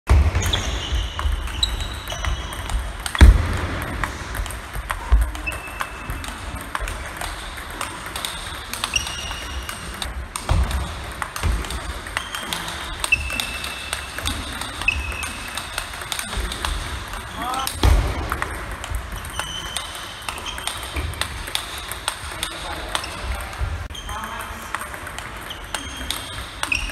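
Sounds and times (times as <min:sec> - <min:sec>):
ping pong ball bouncing: 0:00.4 - 0:26.9.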